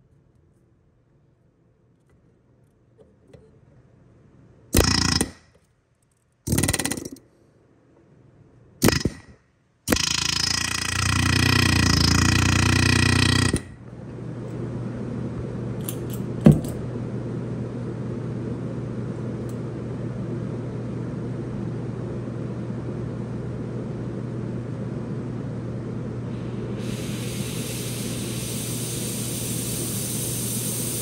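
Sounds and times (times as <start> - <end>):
steady low hum: 0.0 - 31.0
pneumatic air tool bursts: 4.8 - 5.5, 6.5 - 7.1, 9.9 - 13.7, 26.8 - 31.0.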